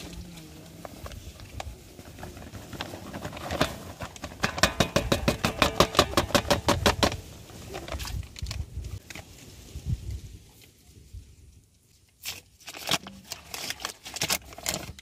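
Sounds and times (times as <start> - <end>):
paper bag crackling shaken: 0.8 - 8.9.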